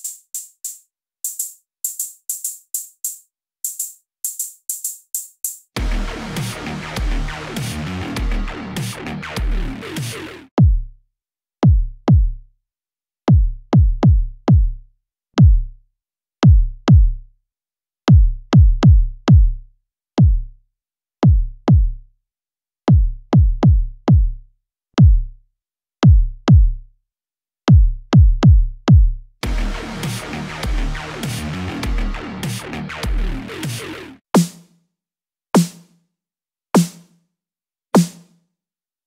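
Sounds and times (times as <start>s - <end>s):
kick drum hits: 10.6s - 10.9s, 11.6s - 12.3s, 13.3s - 14.7s, 15.4s - 15.7s, 16.4s - 17.1s, 18.1s - 19.5s, 20.2s - 20.4s, 21.2s - 21.9s, 22.9s - 24.3s, 25.0s - 25.3s, 26.0s - 26.7s, 27.7s - 29.6s.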